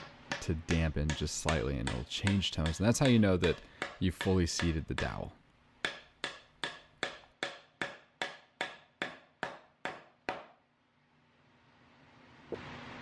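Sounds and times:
mallet knocking wooden dowel: 0:00.3 - 0:05.2, 0:05.8 - 0:10.6.

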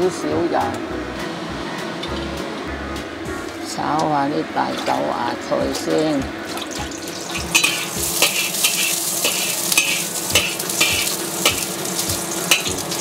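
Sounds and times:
oil sizzling in a wok: 0:06.6 - 0:13.0
metal spatula scraping a pan: 0:07.4 - 0:11.8.

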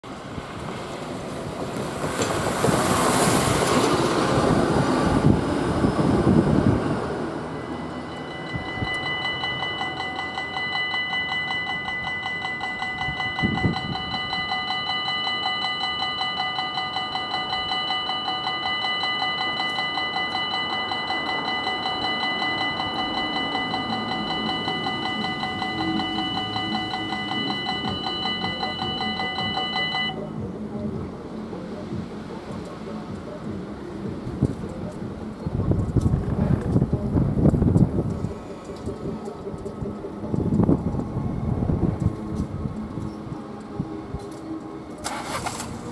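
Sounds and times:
vehicle passing with a rush: 0:00.1 - 0:10.2
level crossing warning bell ringing: 0:07.2 - 0:30.4, 0:44.3 - 0:45.6.

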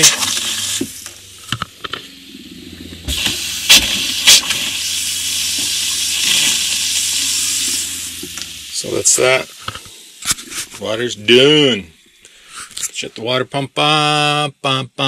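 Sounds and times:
water pump humming: 0:00.0 - 0:14.4
faucet water running into sink: 0:03.1 - 0:10.8.

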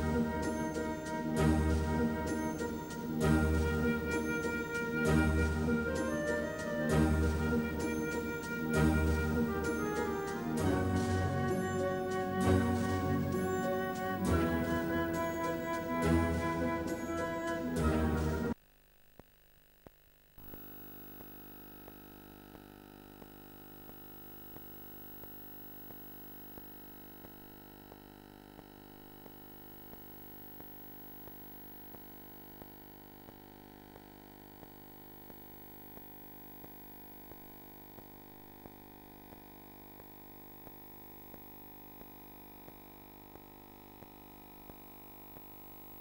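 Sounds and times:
faint electrical hum: 0:18.0 - 0:46.0
small repeating tick: 0:23.2 - 0:28.0, 0:28.6 - 0:45.5.

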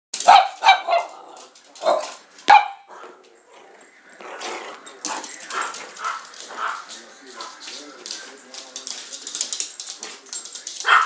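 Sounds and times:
small dog barking: 0:00.2 - 0:01.2, 0:01.8 - 0:02.9.

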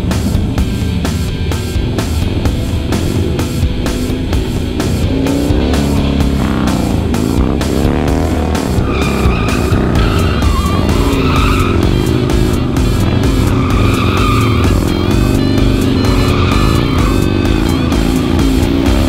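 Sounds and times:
motorcycle engine revving: 0:00.0 - 0:19.0
music with steady beat: 0:00.0 - 0:19.0
tyres squealing: 0:08.5 - 0:19.0.

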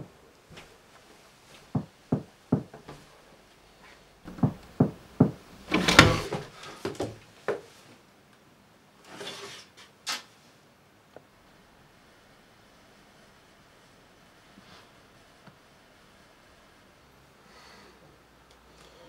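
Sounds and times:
knocking on wooden door: 0:01.8 - 0:02.8, 0:04.3 - 0:05.4.

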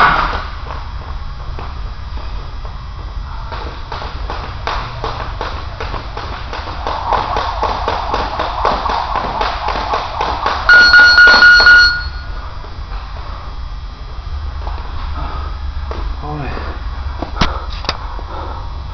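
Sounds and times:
jump rope slapping floor: 0:03.5 - 0:11.4
pulsing electronic beep: 0:10.7 - 0:12.4.

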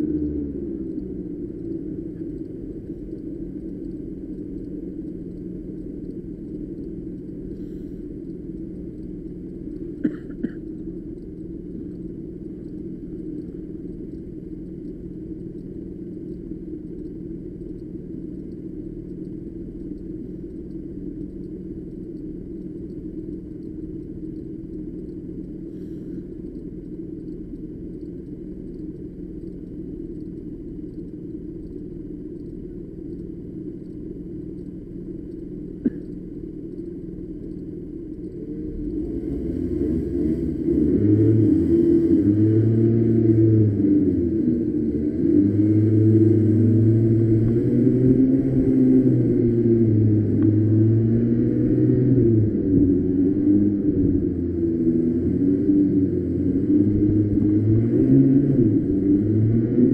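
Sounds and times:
go-kart engine rumbling: 0:35.6 - 0:59.9.

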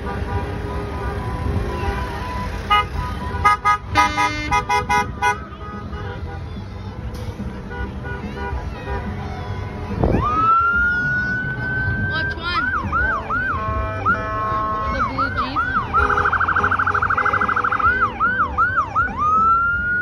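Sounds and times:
emergency vehicle siren: 0:09.9 - 0:20.0.

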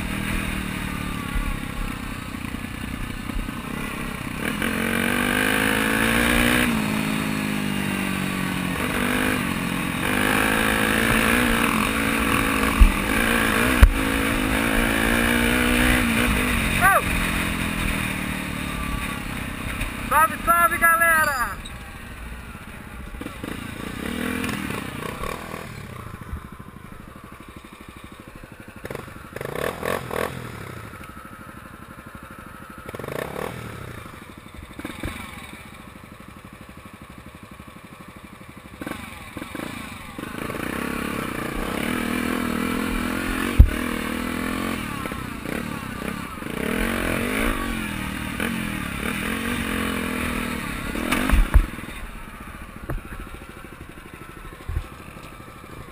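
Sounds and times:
dirt bike engine revving: 0:00.0 - 0:31.3, 0:32.7 - 0:35.8, 0:38.7 - 0:55.9
sharp thump: 0:51.0 - 0:51.8.

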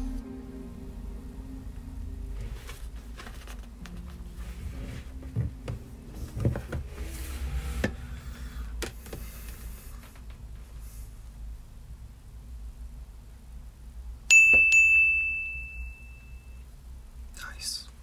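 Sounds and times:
book pages rustling: 0:02.3 - 0:08.1.

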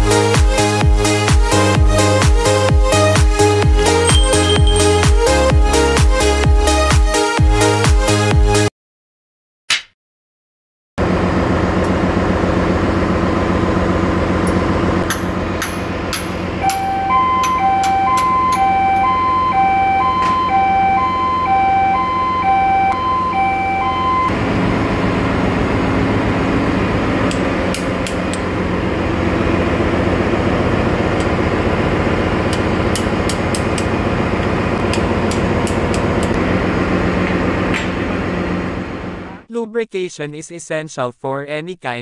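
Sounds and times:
engine-room machinery noise: 0:00.0 - 0:06.4, 0:11.0 - 0:39.5
hand tools knocking on metal: 0:03.9 - 0:05.0, 0:32.5 - 0:34.0
electronic two-tone beep: 0:03.9 - 0:05.2, 0:16.6 - 0:24.3.

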